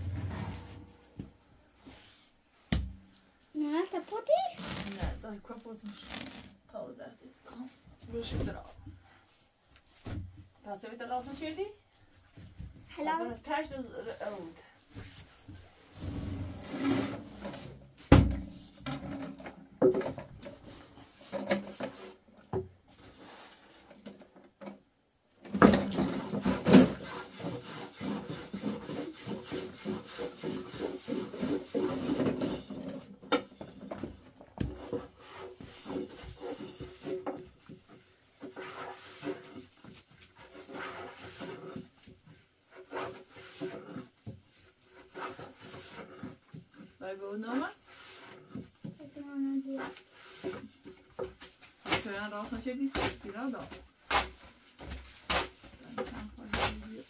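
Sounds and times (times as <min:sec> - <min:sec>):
wood rubbing and knocking: 0:25.5 - 0:47.0.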